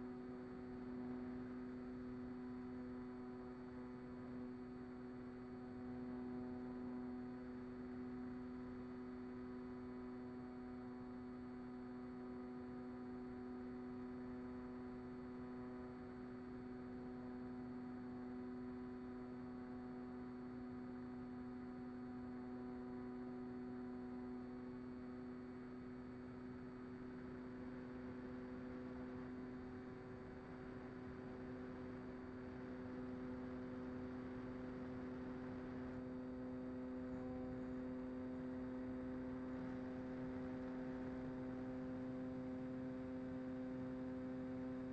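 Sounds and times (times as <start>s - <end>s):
electric motor and propeller hum: 23.1s - 44.9s.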